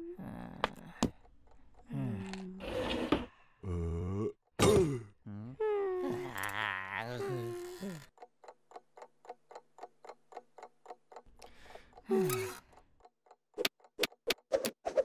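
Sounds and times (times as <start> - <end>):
cartoon character groaning: 3.6 - 8.1
wall clock ticking: 8.0 - 14.5.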